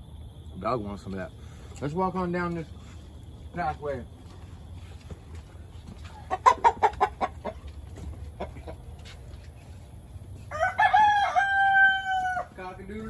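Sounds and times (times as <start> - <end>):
chickens clucking: 4.4 - 10.1
rooster crowing: 10.4 - 12.8.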